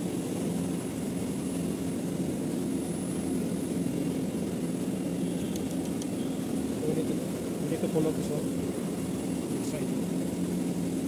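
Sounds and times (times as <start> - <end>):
faint clicks: 5.5 - 6.2.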